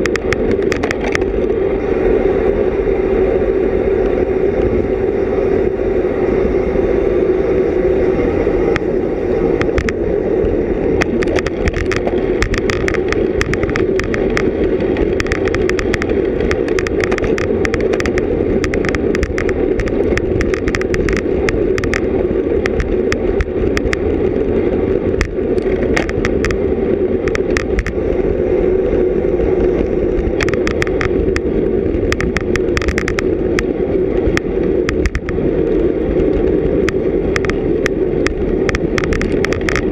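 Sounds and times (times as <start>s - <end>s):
wind and road noise: 0.0s - 39.9s
rapid ticking: 11.0s - 24.1s, 25.1s - 28.0s, 30.2s - 35.4s, 36.8s - 39.9s.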